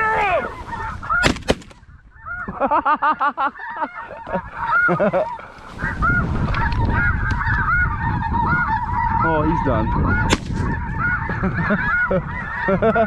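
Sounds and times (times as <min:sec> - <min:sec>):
goose honking calls: 0:00.0 - 0:01.4, 0:03.4 - 0:13.0
shotgun shots: 0:01.2 - 0:01.8, 0:10.3 - 0:10.6.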